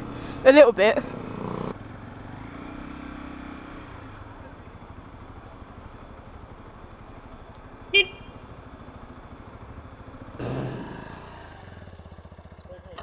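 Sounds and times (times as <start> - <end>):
motorcycle engine idling: 3.7 - 13.0
motorcycle horn toot: 7.9 - 8.4.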